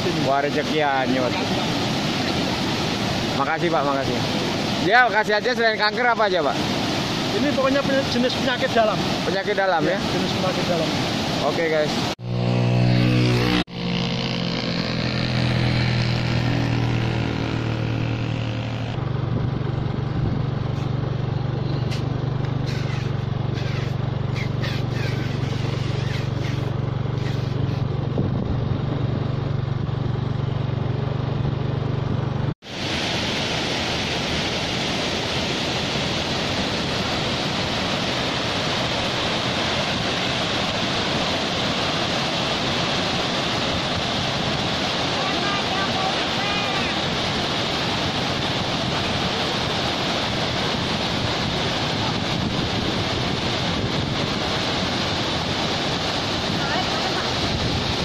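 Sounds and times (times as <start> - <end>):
waterfall rushing: 0.0 - 13.7, 20.7 - 27.9, 32.6 - 58.0
vehicle engine driving: 12.0 - 32.6.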